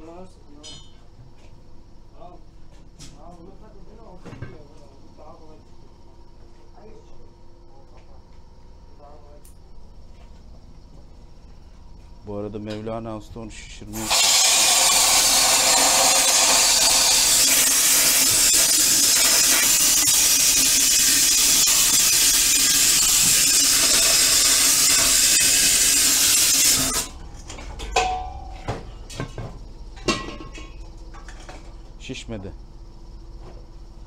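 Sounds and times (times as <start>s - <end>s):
compressed air hissing: 14.0s - 27.1s.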